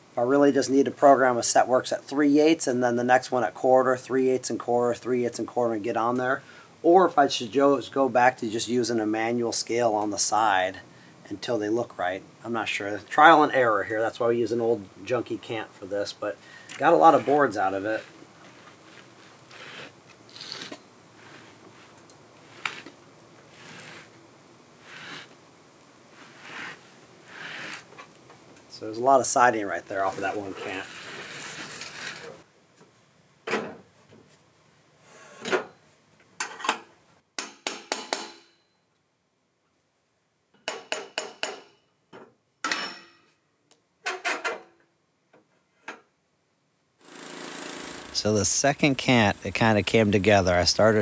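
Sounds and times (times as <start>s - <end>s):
soft scraping rustles: 16.4s - 24.2s, 29.9s - 32.4s.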